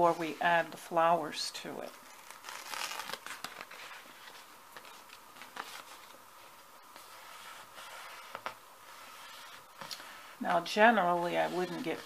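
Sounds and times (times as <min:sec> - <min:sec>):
paper rustling under a hand: 0:01.8 - 0:10.4.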